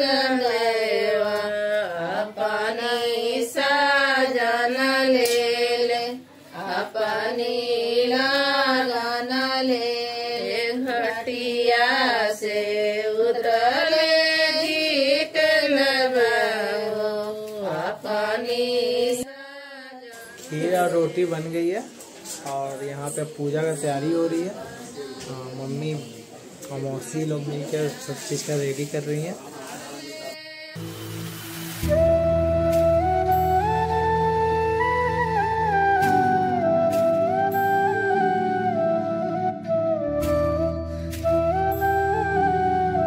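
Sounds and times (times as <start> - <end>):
person singing devotional folk song: 0.0 - 21.6.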